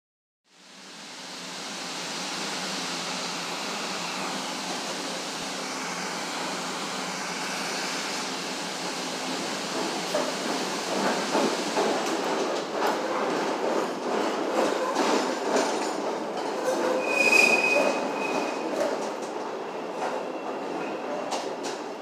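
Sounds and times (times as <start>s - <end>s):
train rushing noise: 0.6s - 22.0s
train wheel clacks: 9.3s - 19.4s.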